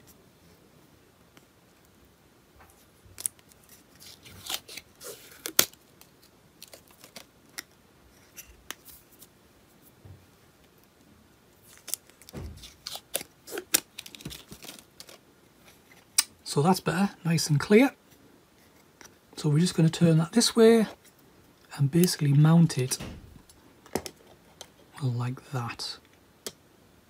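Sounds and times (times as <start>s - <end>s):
plastic film peeling crackles: 3.2s - 7.7s, 11.6s - 15.2s.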